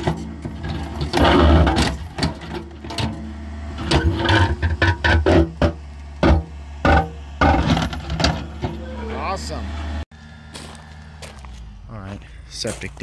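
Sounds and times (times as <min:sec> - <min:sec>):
backhoe engine running: 0:00.0 - 0:13.0.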